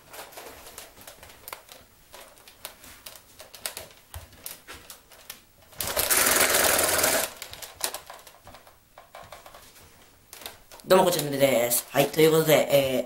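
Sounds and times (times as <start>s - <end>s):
toy blaster whirring rattle: 5.8s - 7.4s.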